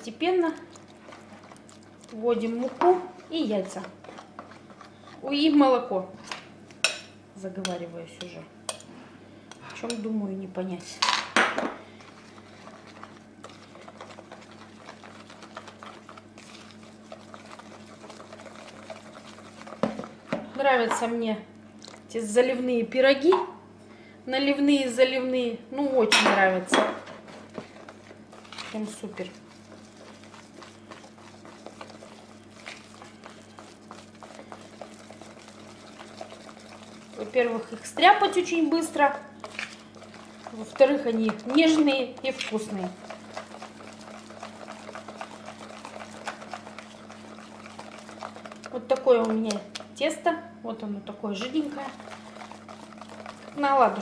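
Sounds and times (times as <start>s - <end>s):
whisk beating batter in bowl: 0.0s - 7.0s, 9.8s - 21.2s, 26.0s - 50.3s, 51.1s - 54.0s
faint steady hum: 0.0s - 54.0s.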